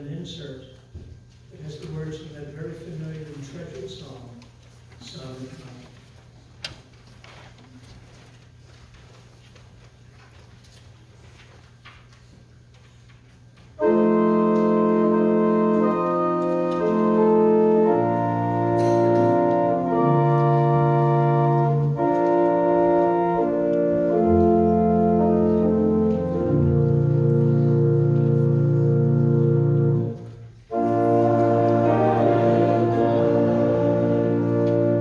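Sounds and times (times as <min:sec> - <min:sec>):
church organ chords: 0:13.8 - 0:35.0.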